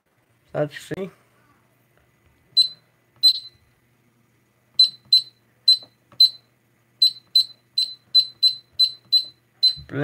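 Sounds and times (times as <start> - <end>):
keypad beeping: 2.5 - 3.6, 4.8 - 10.0.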